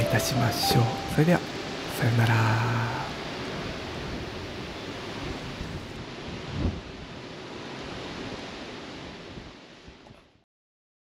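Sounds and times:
low buffet from wind gust: 1.1s - 10.1s
wind rushing over microphone: 1.4s - 10.2s.

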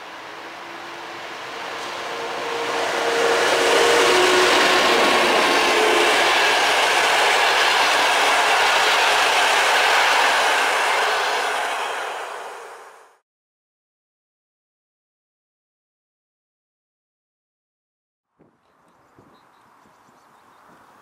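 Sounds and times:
electric locomotive passing: 0.0s - 13.2s
train wheels rushing on rails: 0.0s - 13.2s.

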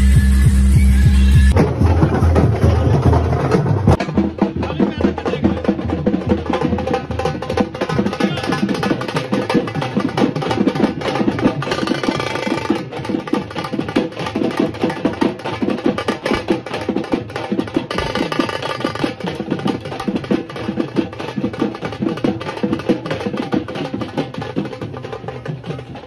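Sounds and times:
fast steady drumming: 1.4s - 26.0s.

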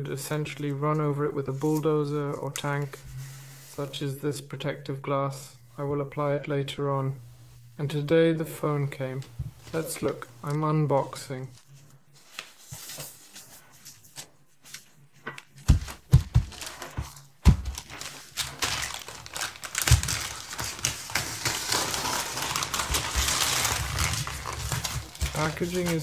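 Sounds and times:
plastic bag crinkling: 15.7s - 26.0s
scissors cutting plastic: 17.8s - 26.0s.

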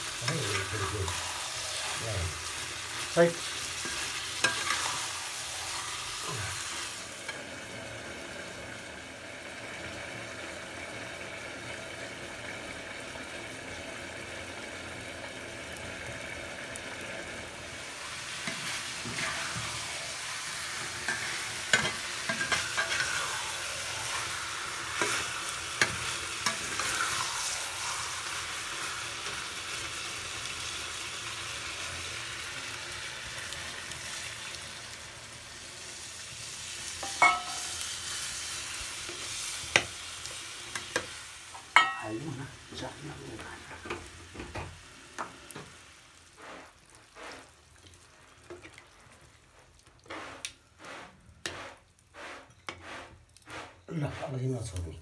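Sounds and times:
curry sizzling in a pan: 0.0s - 55.0s
spoon clinking against pan: 37.0s - 37.8s, 41.8s - 42.1s.

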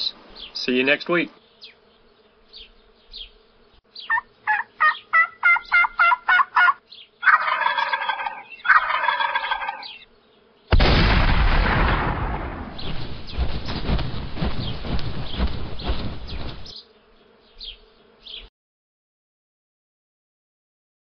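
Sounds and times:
turkey call yelps: 4.1s - 10.0s
turkey gobbles: 4.1s - 10.0s
loud bang: 10.7s - 13.3s.

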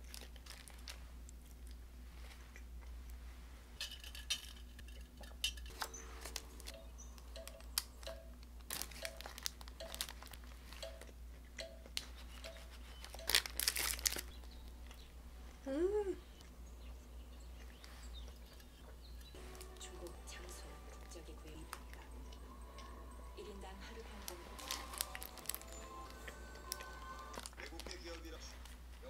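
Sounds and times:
paper wrapper crinkling: 0.0s - 1.8s, 5.7s - 10.9s, 12.0s - 14.9s, 23.8s - 29.0s.

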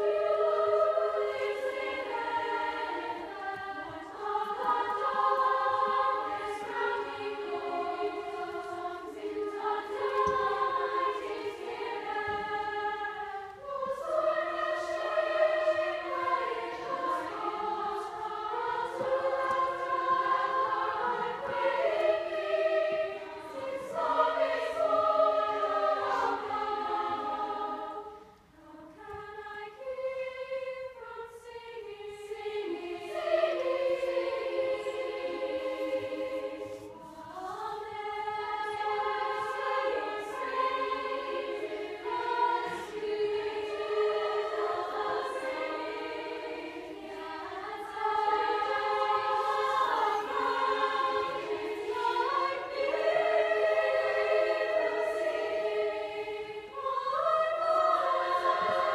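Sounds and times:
choir singing held chords: 0.0s - 58.9s.

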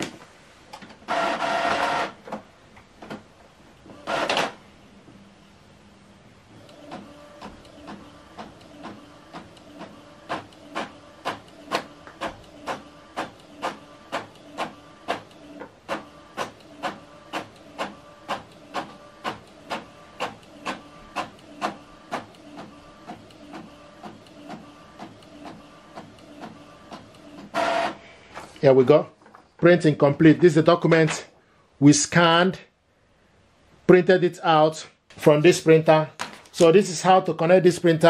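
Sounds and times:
printer motor hum: 1.0s - 2.4s, 3.8s - 4.6s, 6.4s - 28.0s
print head clicks: 3.9s - 4.6s, 6.6s - 28.0s.

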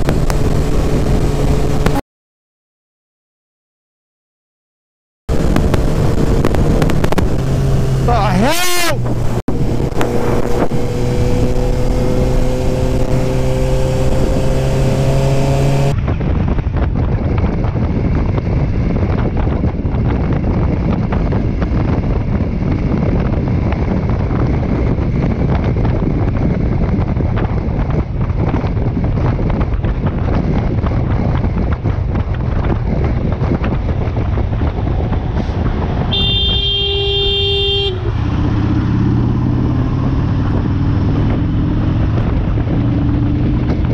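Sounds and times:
motorcycle engine accelerating: 0.0s - 2.0s, 5.3s - 43.9s
motorcycle engine cruising: 0.0s - 2.0s, 5.3s - 43.9s
wind noise: 0.0s - 2.0s, 5.3s - 43.9s
vehicle horn: 8.4s - 9.1s, 36.1s - 38.1s.

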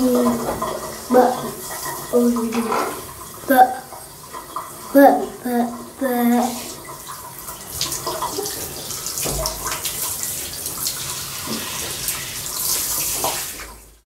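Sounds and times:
shower head spraying water: 4.8s - 13.8s
small water splashes: 6.5s - 13.8s.

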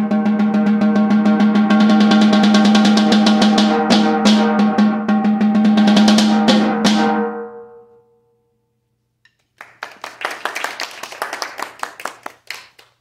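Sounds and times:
applause: 9.4s - 13.0s.

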